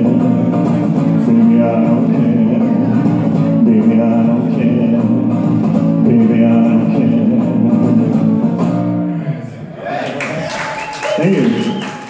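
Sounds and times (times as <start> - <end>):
electric guitar strumming chords: 0.0 - 9.1.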